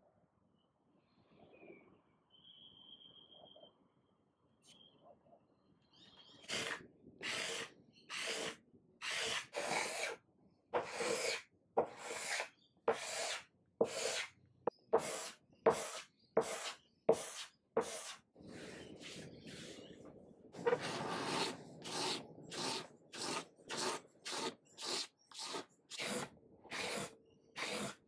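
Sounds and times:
hand scraper scraping wood: 0:06.5 - 0:10.2, 0:10.8 - 0:14.3, 0:20.6 - 0:28.0.

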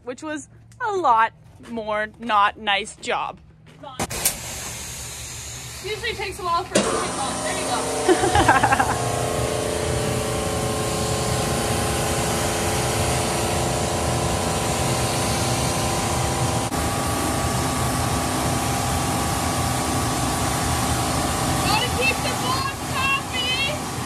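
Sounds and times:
steady machine hum: 0:00.0 - 0:24.0
pressure washer spraying metal: 0:04.1 - 0:24.0.

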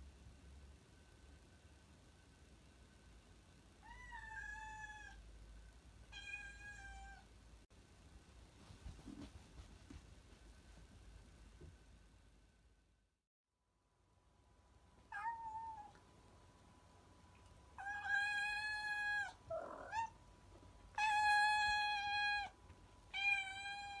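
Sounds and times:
cat meowing: 0:15.1 - 0:16.0, 0:17.8 - 0:20.2, 0:23.1 - 0:24.0.

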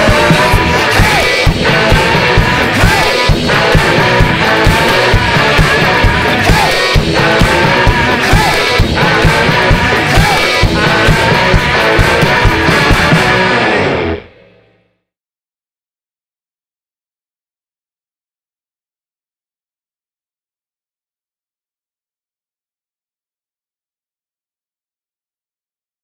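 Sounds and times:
rock music with singing and guitar: 0:00.0 - 0:14.8.

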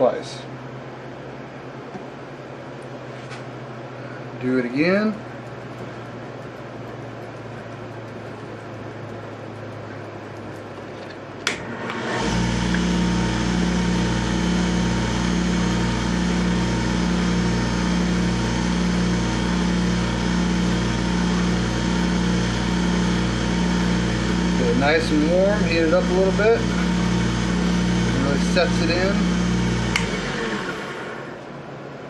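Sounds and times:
wood lathe running: 0:11.6 - 0:31.5
lathe switch click: 0:29.9 - 0:30.2.

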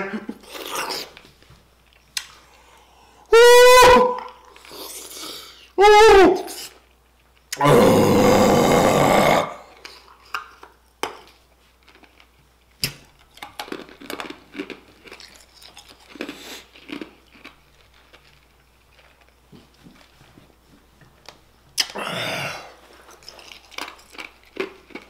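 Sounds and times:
loud rough burp: 0:07.6 - 0:09.7
quiet chewing: 0:09.8 - 0:22.0, 0:22.7 - 0:25.0.

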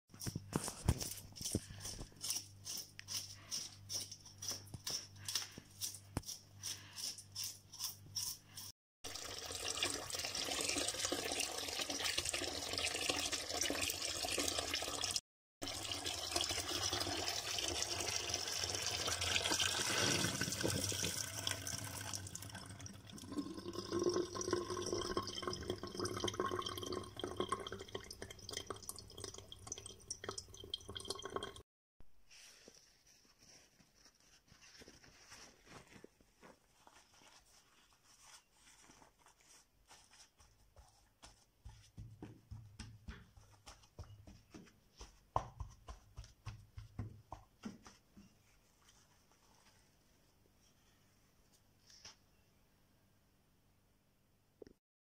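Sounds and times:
tap water splashing in sink: 0:15.8 - 0:22.9.

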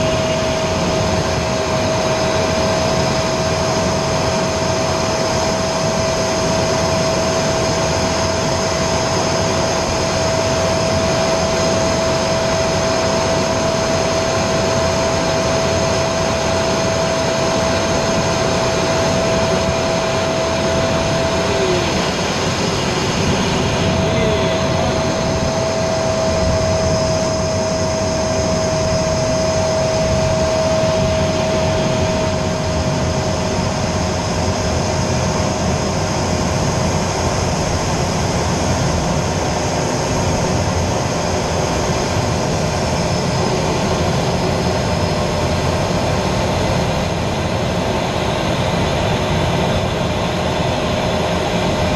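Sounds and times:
constant whine: 0:00.0 - 0:51.9
jet engine noise: 0:00.0 - 0:51.9
rushing air: 0:11.6 - 0:51.9.

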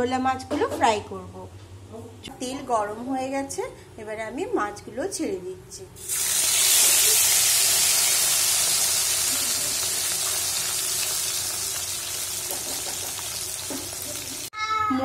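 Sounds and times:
fish sizzling in hot oil: 0:06.0 - 0:14.5.

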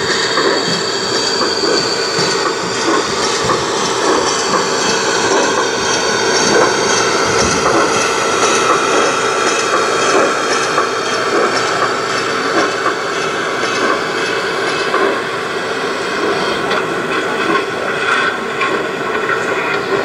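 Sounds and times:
wheels clicking over rail joints: 0:00.0 - 0:15.3
model train rolling rumble: 0:00.0 - 0:20.0.

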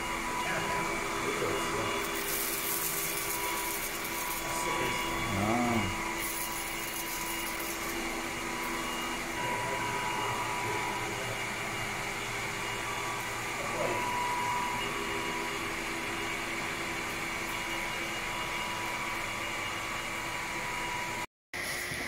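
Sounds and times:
robot vacuum motor hum: 0:00.0 - 0:21.2.

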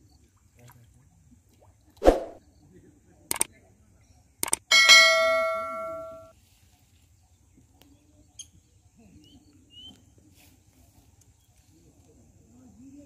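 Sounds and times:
ringing bell chime: 0:04.7 - 0:06.3.

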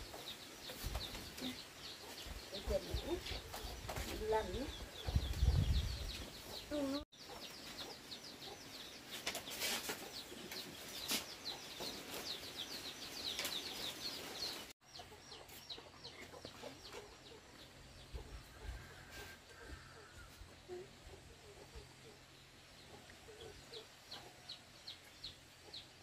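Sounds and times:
chicks peeping: 0:00.0 - 0:26.0.

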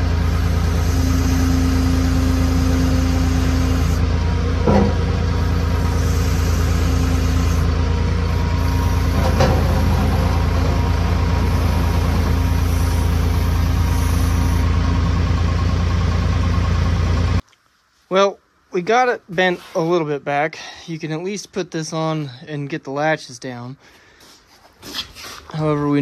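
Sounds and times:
diesel engine running: 0:00.0 - 0:17.4.

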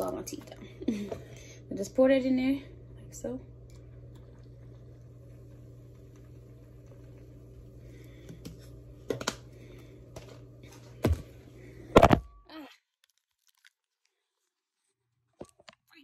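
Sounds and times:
steady low hum: 0:00.0 - 0:12.5.

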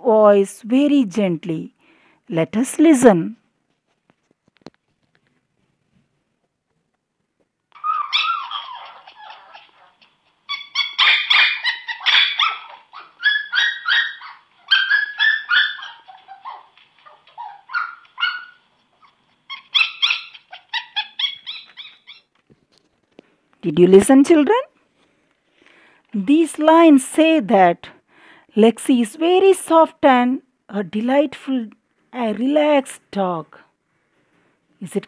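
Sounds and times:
puppy barking and yipping: 0:07.7 - 0:22.4.

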